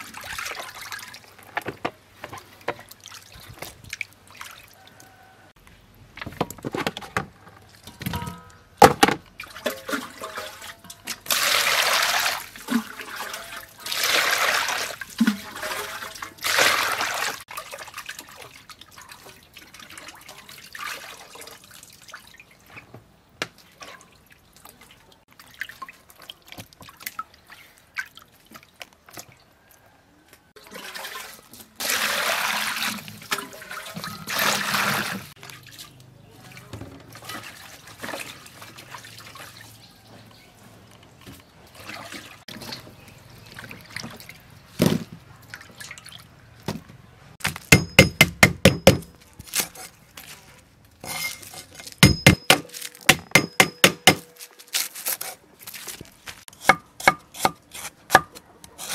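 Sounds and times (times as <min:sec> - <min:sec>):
water sloshing in metal basin: 0:00.0 - 0:05.5, 0:06.1 - 0:29.8, 0:30.5 - 0:46.7, 0:47.7 - 0:56.2
water pouring: 0:09.4 - 0:22.7, 0:30.6 - 0:39.8.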